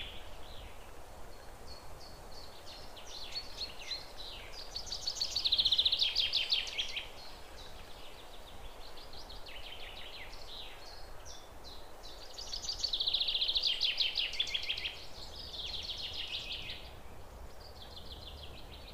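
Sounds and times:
faint background hiss: 0.0 - 18.9.

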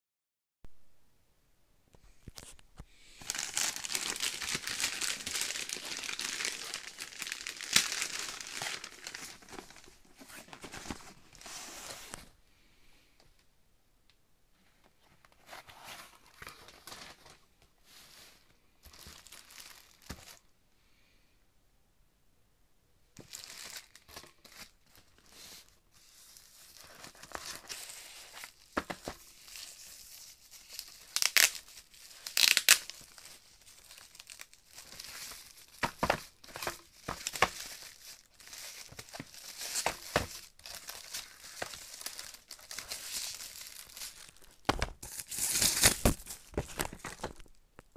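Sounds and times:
plastic wrapping crinkling: 3.2 - 12.2, 18.8 - 20.4, 23.2 - 47.9.

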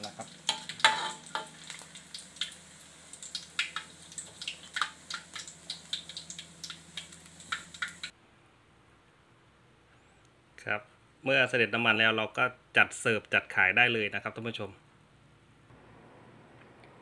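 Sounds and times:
oil dripping into hot oil: 0.0 - 8.1
hot oil crackling and popping: 0.0 - 8.2.

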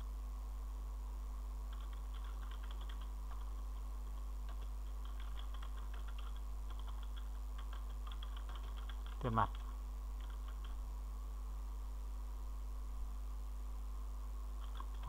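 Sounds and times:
low hum: 0.0 - 15.0
computer keyboard typing: 1.7 - 10.8, 14.6 - 15.0.

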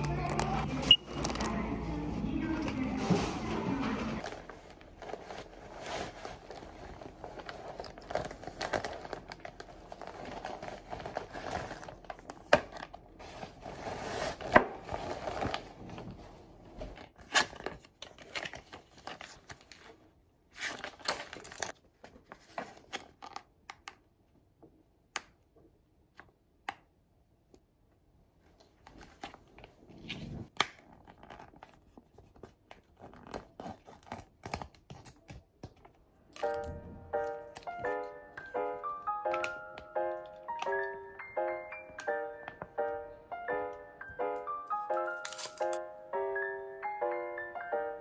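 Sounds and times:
cloth bag rustling: 3.0 - 17.0
plastic pouch crinkling: 4.2 - 13.2.

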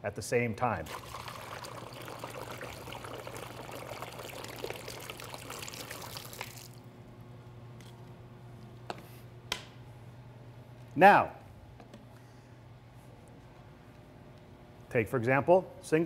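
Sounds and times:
water pouring through a funnel: 0.8 - 6.8.

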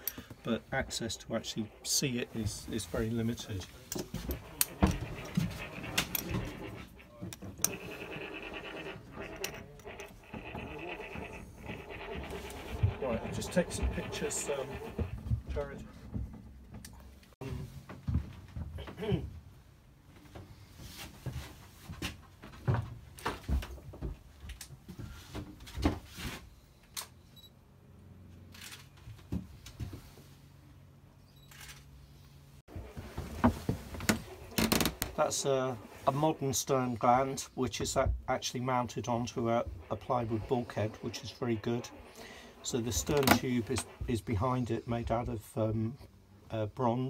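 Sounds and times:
handling clicks and rustling: 0.0 - 17.4, 32.7 - 44.5.

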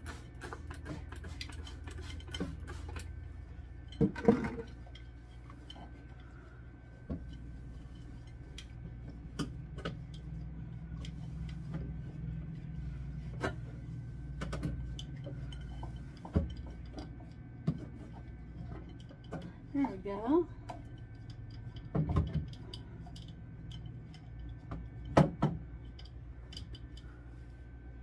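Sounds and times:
refrigerator low hum: 0.0 - 28.0
jars and bottles clinking: 3.8 - 5.9.

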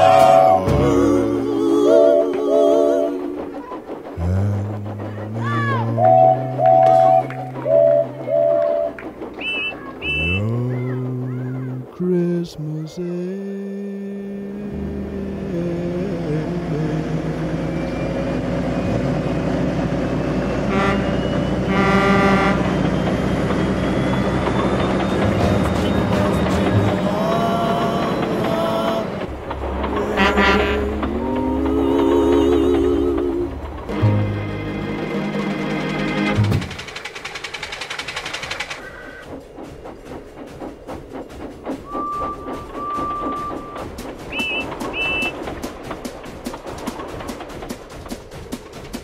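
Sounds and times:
locomotive horn: 0.0 - 1.0, 5.4 - 10.6, 20.6 - 23.0, 29.8 - 31.6, 41.9 - 45.4
steam whistle: 0.0 - 3.4, 5.3 - 10.6, 20.2 - 23.1, 30.0 - 32.2, 41.8 - 45.4
locomotive engine rumble: 0.0 - 49.0
music: 25.2 - 27.2, 33.9 - 36.7.

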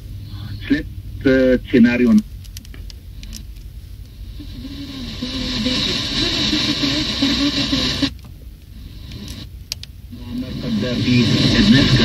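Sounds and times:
faint radio programme: 0.0 - 2.3, 4.1 - 9.5, 10.1 - 12.0
radio static hiss: 0.0 - 2.3, 3.0 - 12.0
low car rumble: 0.0 - 12.0.

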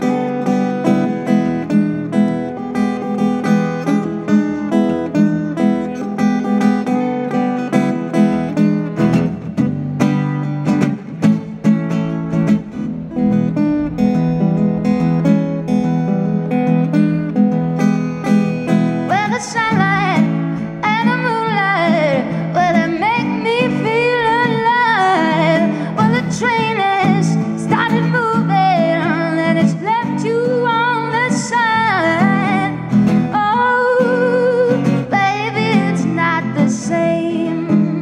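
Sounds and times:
acoustic guitar: 0.0 - 38.0
woman singing blues: 18.9 - 38.0.

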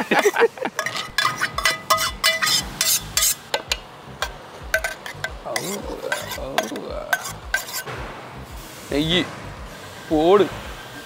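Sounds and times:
steel ladle tapping a pot: 0.8 - 7.9.

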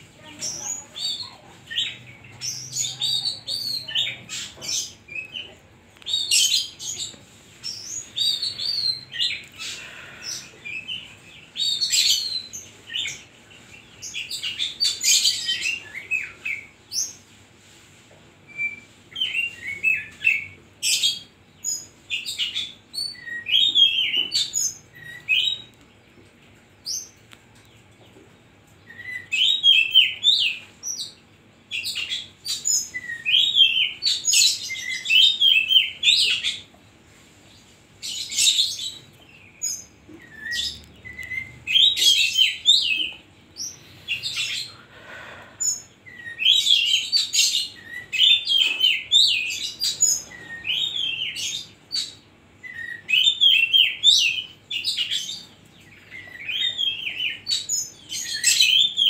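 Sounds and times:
bird singing chirps and whistles: 18.5 - 21.3, 22.1 - 25.7, 28.8 - 31.1, 31.7 - 36.6, 39.6 - 44.8, 46.1 - 59.0.

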